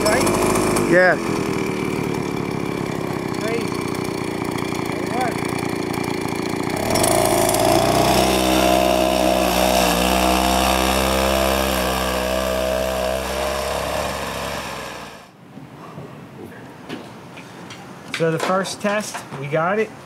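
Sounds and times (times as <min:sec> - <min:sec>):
small engine revving and running: 0:00.0 - 0:15.3.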